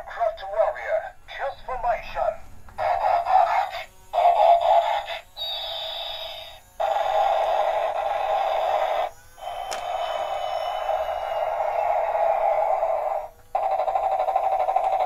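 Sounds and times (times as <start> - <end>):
toy jet-like hiss effects: 0.2 - 15.0
falling whistle: 9.4 - 13.3
sharp click: 9.6 - 9.9.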